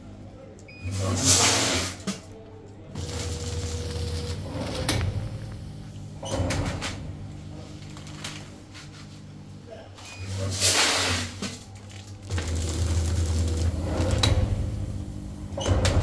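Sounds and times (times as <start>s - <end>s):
machine motor hum: 2.9s - 9.6s, 12.2s - 16.0s
mechanism clacks and clunks: 3.0s - 8.5s, 11.4s - 16.0s.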